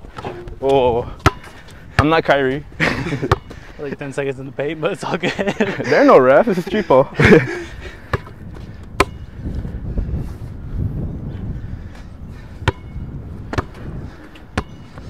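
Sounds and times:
basketball bouncing on hard court: 1.2 - 2.1, 3.3 - 3.5, 8.1 - 9.2, 12.6 - 13.9, 14.6 - 14.9.

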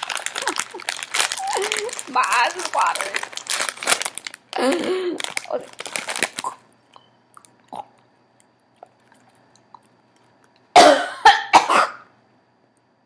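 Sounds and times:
woman coughing hard: 10.8 - 12.1.

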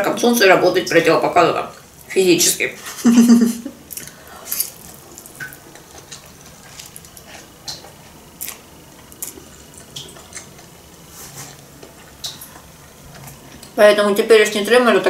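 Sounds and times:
noodles being slurped: 3.9 - 13.5
chewing: 3.9 - 13.8.

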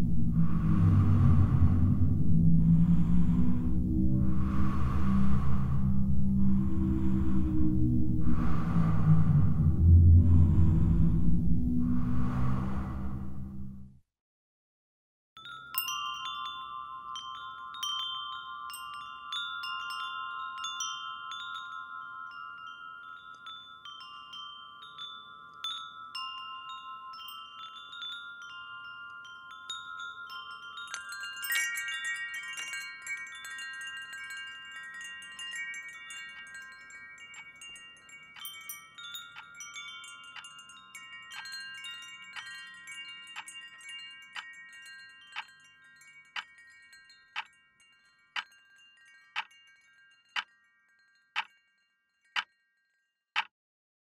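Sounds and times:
wind chimes ringing: 15.4 - 53.3.

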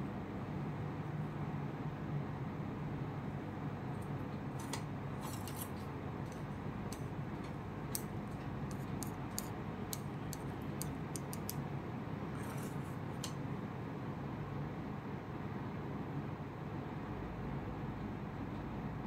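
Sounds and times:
tea pick tapping porcelain: 8.7 - 11.6.

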